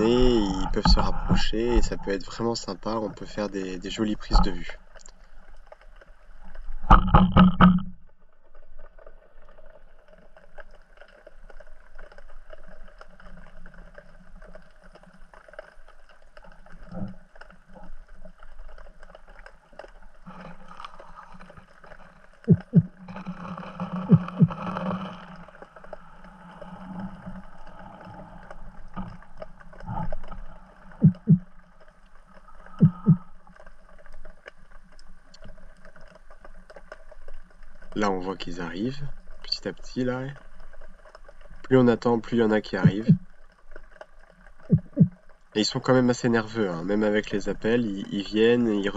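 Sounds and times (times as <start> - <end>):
underwater rush of water: 0.0 - 48.9
knocks and thuds: 6.9 - 8.0.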